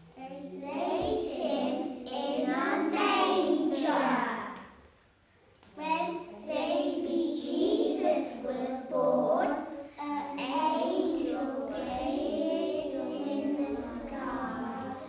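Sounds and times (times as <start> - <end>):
children singing in unison: 0.8 - 4.3, 6.6 - 9.8, 10.4 - 15.0.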